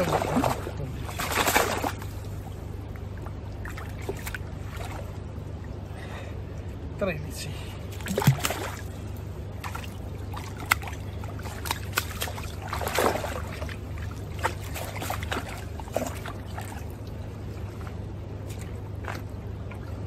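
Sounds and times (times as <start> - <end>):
net splashing in water: 0.0 - 2.2, 8.0 - 8.9, 9.6 - 17.0
flowing river water: 0.0 - 6.7, 7.4 - 20.0.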